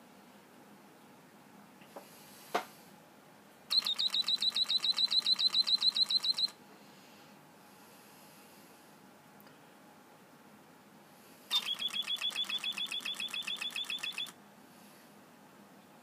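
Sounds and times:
whistle bird chirp trill: 3.7 - 6.4, 11.5 - 14.3.

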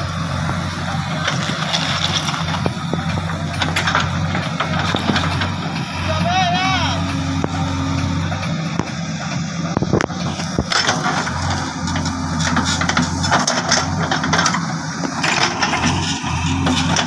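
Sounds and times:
diesel engine running: 0.0 - 17.0
hydraulic arm hissing and clattering: 0.1 - 6.2.

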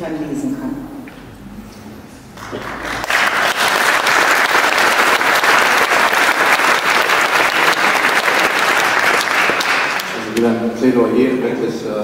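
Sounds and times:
audience applauding: 2.4 - 10.6.

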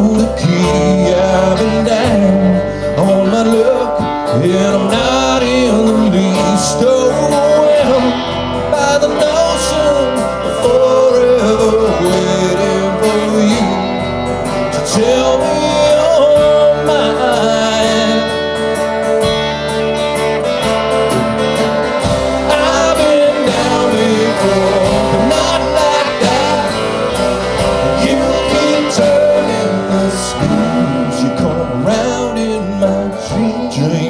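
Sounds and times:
acoustic guitar strumming: 0.0 - 34.0
bass: 0.0 - 34.0
steady drum beat: 21.0 - 32.0.

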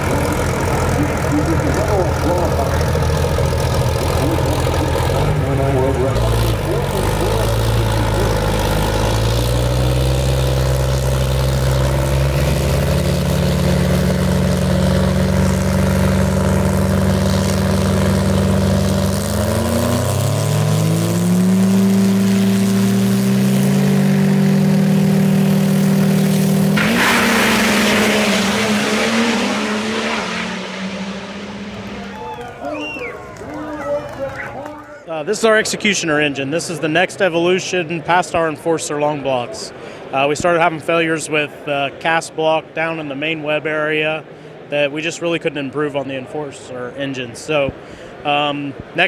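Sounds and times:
car accelerating full throttle: 0.0 - 33.5
diesel engine revving: 0.0 - 35.6.

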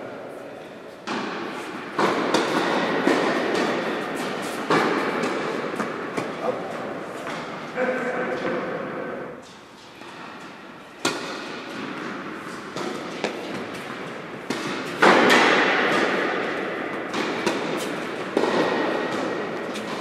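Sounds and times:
tennis ball bouncing on hard court: 1.0 - 6.4, 11.0 - 20.0
tennis racket strikes: 1.0 - 6.5, 9.4 - 20.0.

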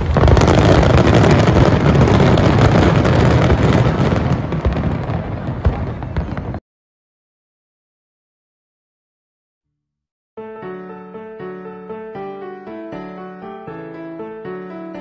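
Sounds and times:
fireworks bangs and crackles: 0.0 - 6.6.

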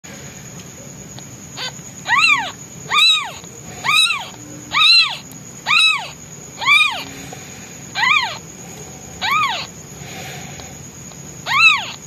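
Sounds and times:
kitten meowing: 1.6 - 7.1, 8.0 - 8.4, 9.2 - 9.7, 11.4 - 12.0.

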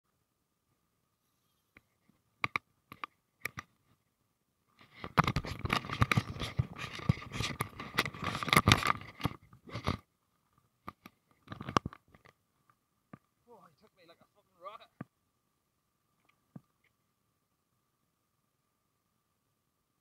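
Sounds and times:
clothing rubbing on microphone: 4.8 - 10.1.

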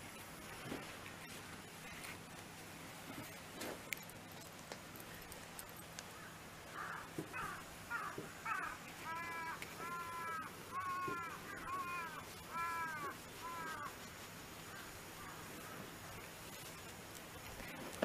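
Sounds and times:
bird calling: 6.0 - 16.4.

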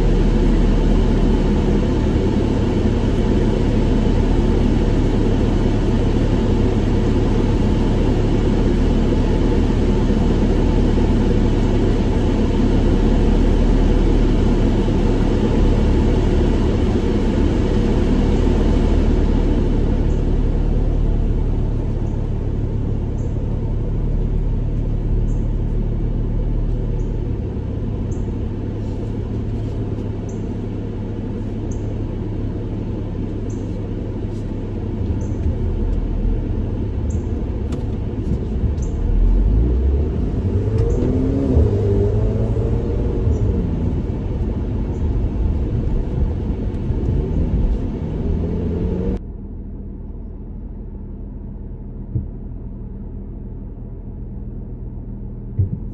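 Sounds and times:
car engine rumble from cabin: 0.0 - 55.9.

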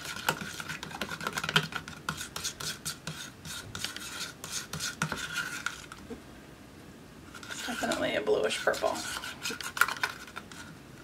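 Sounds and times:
palette knife scraping paint: 0.0 - 6.0, 7.3 - 10.8.

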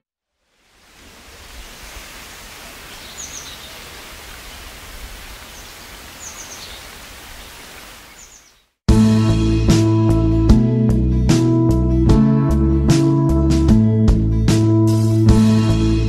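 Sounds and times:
steady rushing hiss: 0.4 - 8.6
faint high bird chirps: 2.6 - 8.7.

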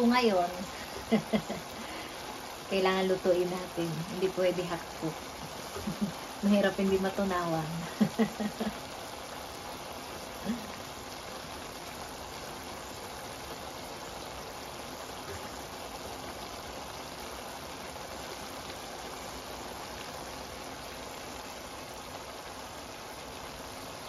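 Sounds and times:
vegetables sizzling in a wok: 0.0 - 24.0.

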